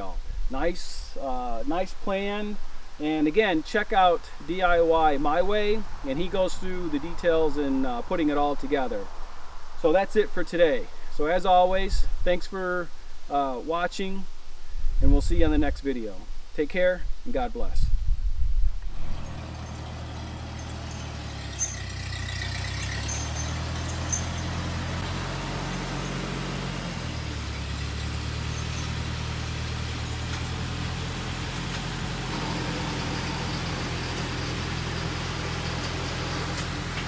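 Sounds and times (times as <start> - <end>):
tractor engine running at low speed: 18.5 - 37.0.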